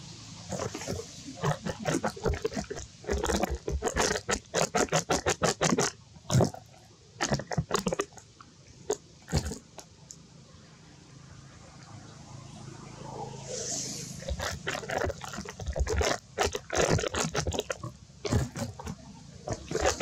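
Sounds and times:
monkey chewing fruit crunches: 0:00.5 - 0:08.3, 0:08.9 - 0:09.9, 0:14.2 - 0:20.0.

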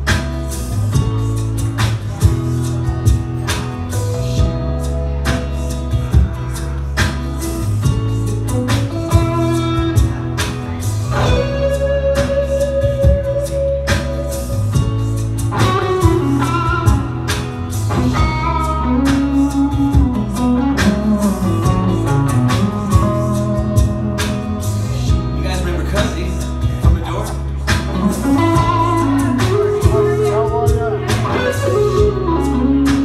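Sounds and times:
bass: 0:00.0 - 0:33.0
electric guitar lead: 0:00.0 - 0:33.0
drum beat: 0:12.2 - 0:32.2.

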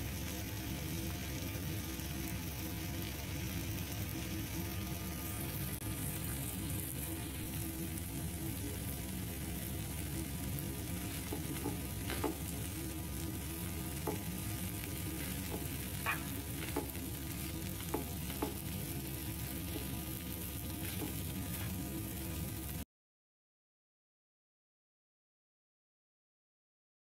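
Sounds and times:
food sizzling in a frying pan: 0:00.0 - 0:22.8
spatula knocking against pan: 0:14.0 - 0:14.3, 0:15.4 - 0:17.0, 0:17.9 - 0:18.6.

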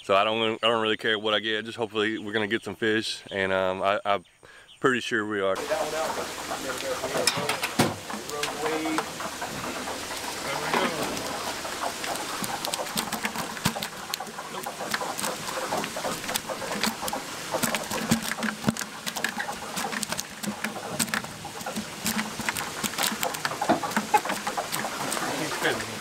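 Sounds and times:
shrimp clicking in bucket: 0:05.6 - 0:26.0.

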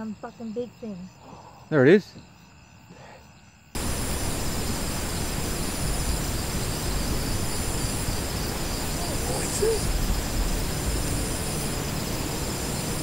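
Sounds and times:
crickets trilling: 0:00.0 - 0:13.0
loud steady hiss: 0:03.8 - 0:13.0.

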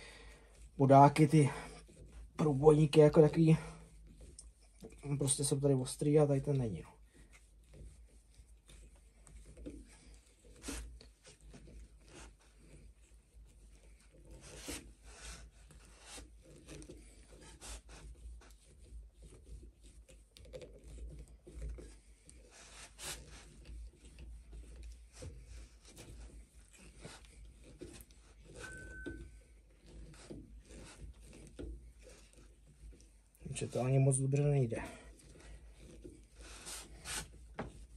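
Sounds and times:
awl scraping into wood: 0:00.0 - 0:37.9
brief squeak: 0:28.6 - 0:29.4.

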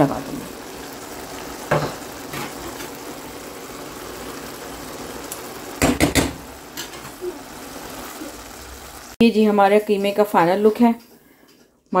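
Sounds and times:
rice bubbling in a pot: 0:00.0 - 0:09.2
spatula knocking against pot: 0:05.8 - 0:06.4.

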